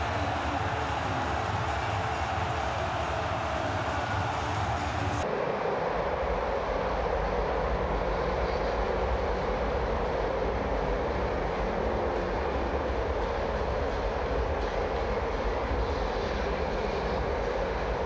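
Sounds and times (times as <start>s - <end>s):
stadium crowd roaring: 0.0s - 9.0s.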